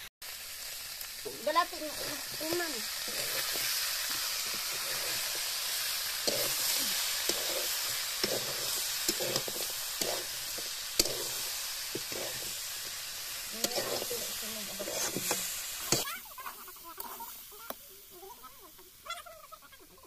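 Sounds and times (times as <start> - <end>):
food sizzling in a wok: 0.0 - 20.0
metal spatula scraping pan: 1.4 - 16.1.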